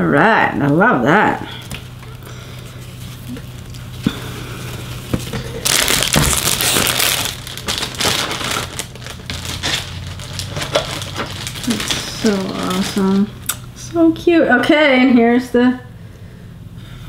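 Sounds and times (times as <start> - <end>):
packaging crinkling: 1.8 - 4.0, 4.6 - 13.6.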